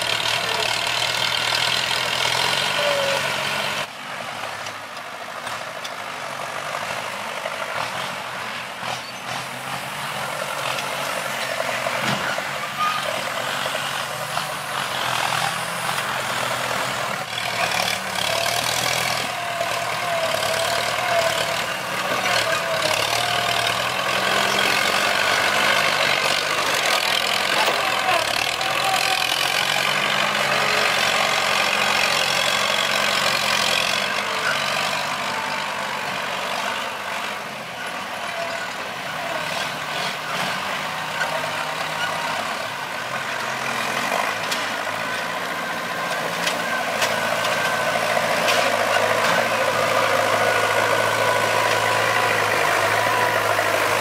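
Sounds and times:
tractor engines running: 0:00.0 - 0:54.0.

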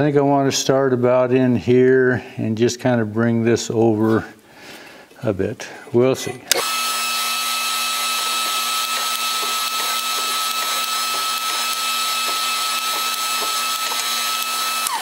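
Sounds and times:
shop press motor whining: 0:06.5 - 0:15.0.

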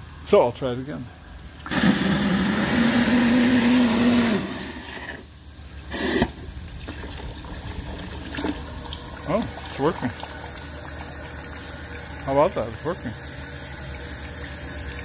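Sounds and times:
steam rushing and hissing: 0:05.9 - 0:06.5.

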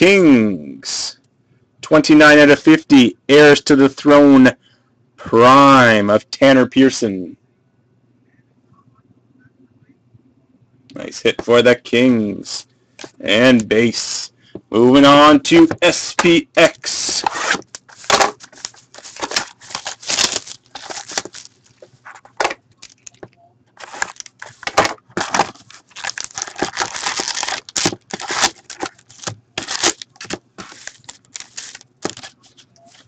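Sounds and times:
foil packs crinkling: 0:16.9 - 0:33.0
cardboard and wrapping tearing: 0:17.2 - 0:21.8, 0:23.8 - 0:33.0.

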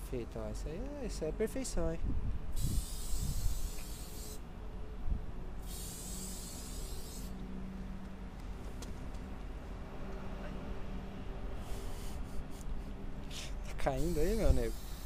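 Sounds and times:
spray paint can hissing: 0:02.6 - 0:04.4, 0:05.6 - 0:07.4, 0:11.6 - 0:12.7, 0:13.3 - 0:15.0.

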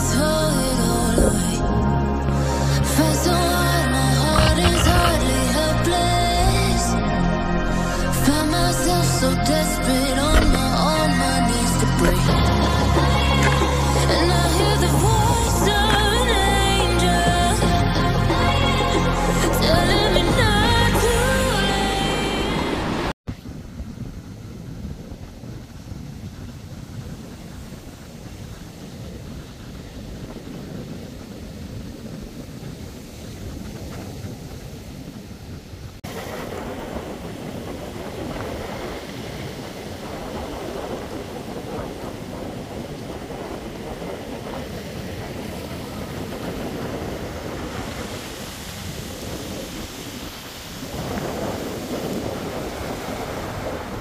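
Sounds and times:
song with sung vocal: 0:00.0 - 0:23.1
rough water: 0:00.0 - 0:54.0
stormy wind rushing: 0:00.0 - 0:54.0
wind buffeting microphone: 0:00.0 - 0:54.0.

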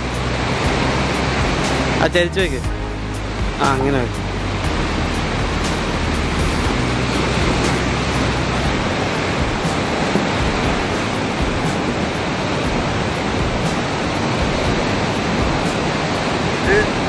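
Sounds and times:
sea surf rushing: 0:00.0 - 0:17.0
wind: 0:00.0 - 0:17.0.

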